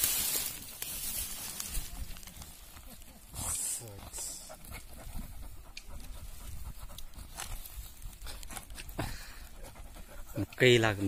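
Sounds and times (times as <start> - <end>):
dog digging in dry grass: 0.0 - 3.2.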